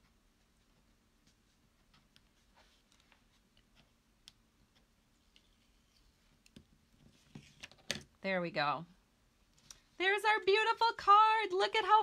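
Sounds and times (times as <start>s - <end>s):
small clicks and paper ticks: 0.0s - 7.8s.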